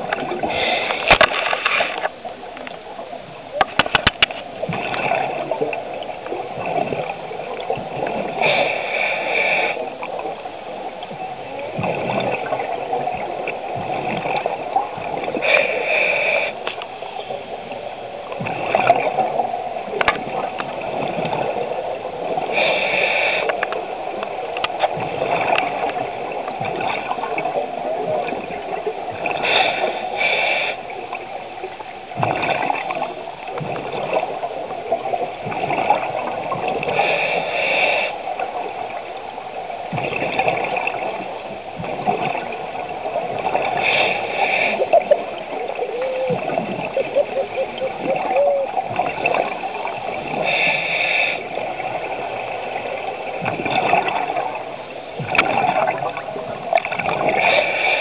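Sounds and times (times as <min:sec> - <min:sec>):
scuba regulator hissing inhale: 0:00.4 - 0:01.1, 0:08.4 - 0:09.9, 0:15.4 - 0:16.7, 0:22.5 - 0:23.6, 0:29.4 - 0:30.9, 0:36.9 - 0:38.3, 0:43.7 - 0:44.9, 0:50.4 - 0:51.6, 0:57.4 - 0:58.0
bubbling gurgling exhale: 0:41.8 - 0:52.2.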